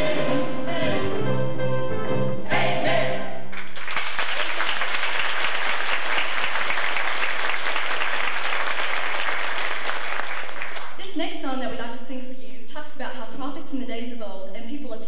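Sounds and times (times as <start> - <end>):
choir singing chord: 0.0 - 3.5
audience applauding: 3.6 - 11.0.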